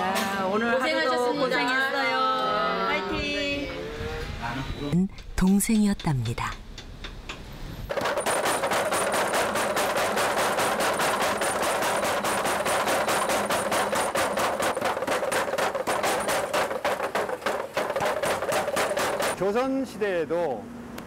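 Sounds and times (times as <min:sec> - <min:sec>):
power hammer blows: 0:07.9 - 0:19.5.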